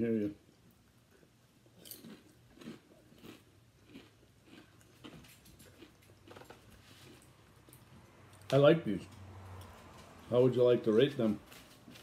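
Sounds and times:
chewing potato chips: 1.1s - 8.5s.

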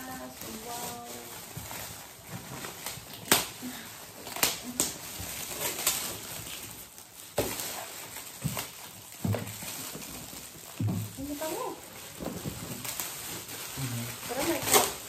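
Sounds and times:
foil gift wrap crinkling: 0.0s - 15.0s
sharp snaps of paper and tape: 2.8s - 3.6s, 4.2s - 6.2s, 14.4s - 15.0s.

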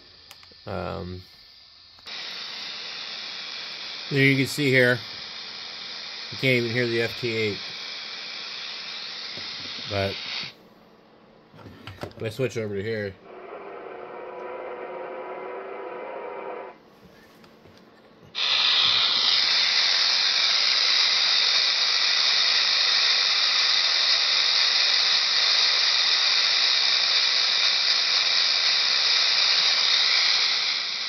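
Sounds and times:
radio static hiss: 0.0s - 10.6s, 11.7s - 17.4s, 18.3s - 31.0s.

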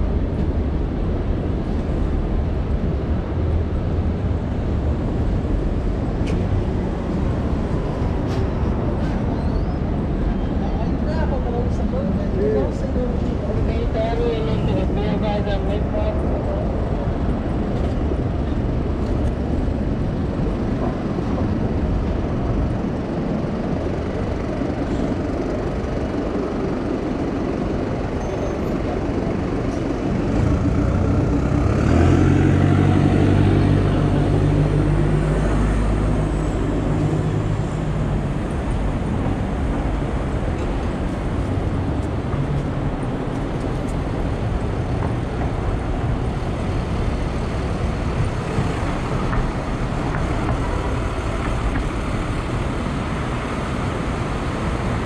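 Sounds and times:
street traffic hum: 0.0s - 55.0s
large vehicle engine close: 15.8s - 55.0s.

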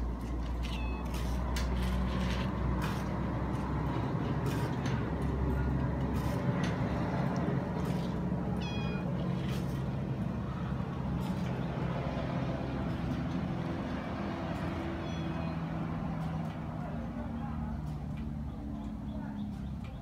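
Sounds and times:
kitten meowing: 8.6s - 9.0s.

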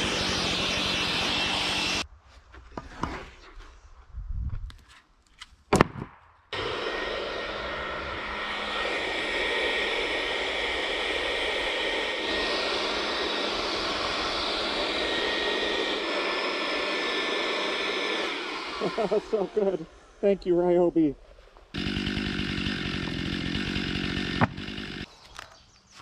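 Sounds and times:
blower rushing air with whine: 0.0s - 2.0s, 6.6s - 20.6s.

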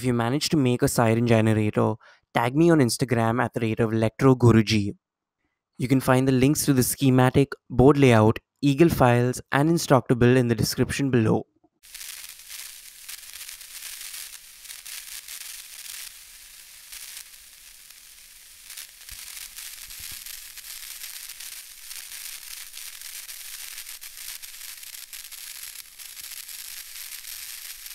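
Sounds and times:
crackling static hiss: 11.8s - 27.9s.

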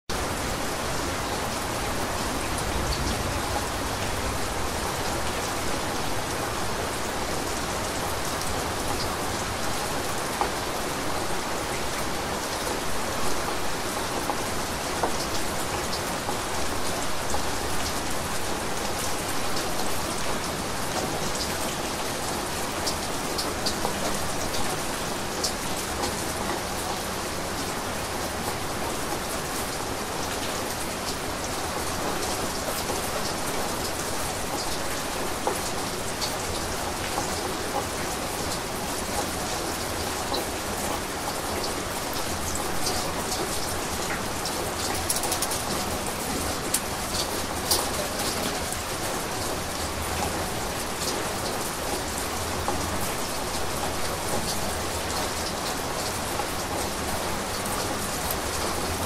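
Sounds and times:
steady rain hiss: 0.1s - 59.0s
rain drop ticks: 40.0s - 48.9s, 49.8s - 59.0s.

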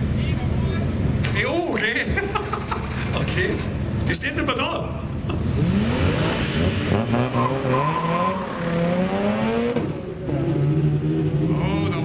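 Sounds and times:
race car engines accelerating: 4.9s - 12.0s.

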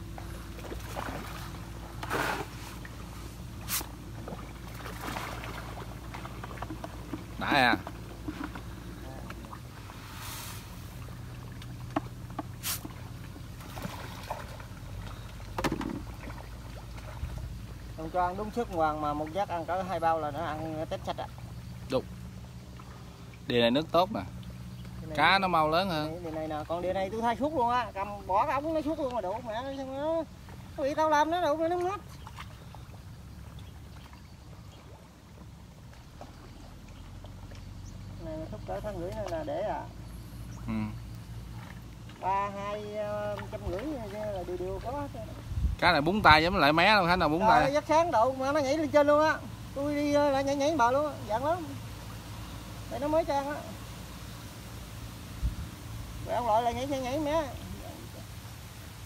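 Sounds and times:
fish splashing at water surface: 0.0s - 23.5s
low motor hum: 0.0s - 59.0s
water trickling and splashing: 0.0s - 59.0s.

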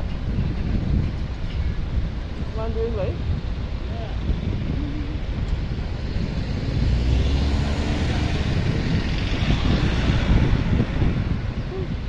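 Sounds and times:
low rumble: 0.0s - 12.0s
vehicle passing on road: 4.1s - 12.0s.

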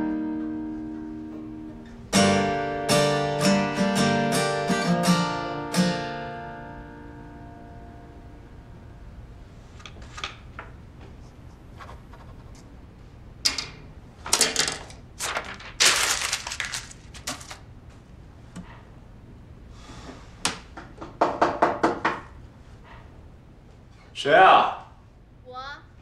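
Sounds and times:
knocking on a door: 20.8s - 22.3s.

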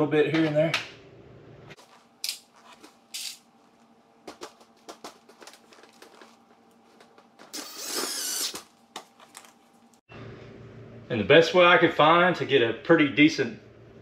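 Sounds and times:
cordless drill driving screw: 7.5s - 8.6s.

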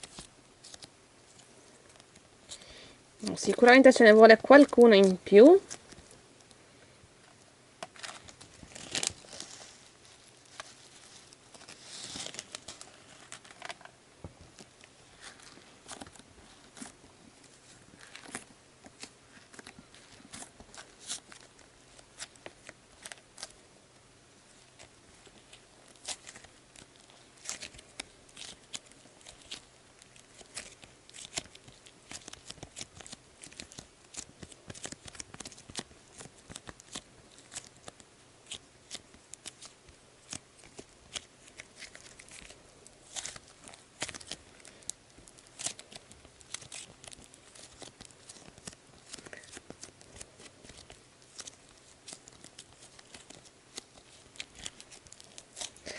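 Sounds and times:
plastic bag rustling: 7.8s - 23.6s, 24.5s - 55.9s.

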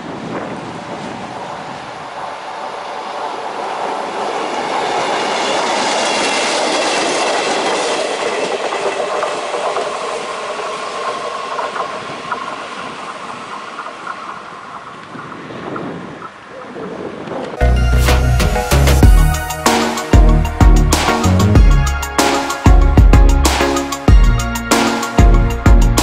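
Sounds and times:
train wheels clattering over joints: 4.0s - 15.4s.

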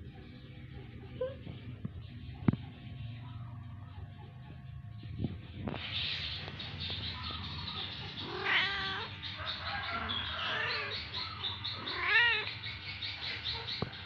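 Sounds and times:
kittens meowing: 6.4s - 12.8s.

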